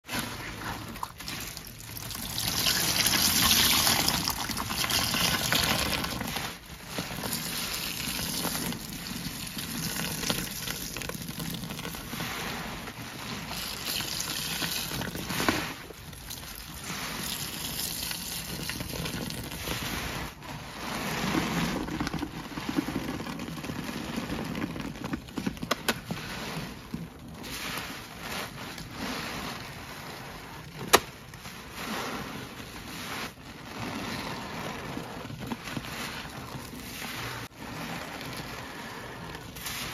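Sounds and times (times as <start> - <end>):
wet sponges squelching: 0.0 - 39.9
liquid gushing into bucket: 0.1 - 25.4.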